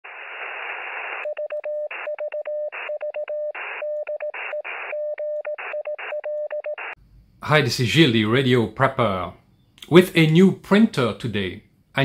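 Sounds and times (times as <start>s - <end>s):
radio static: 0.0s - 2.1s, 2.7s - 5.0s, 5.6s - 7.0s
morse code tone: 1.2s - 7.0s.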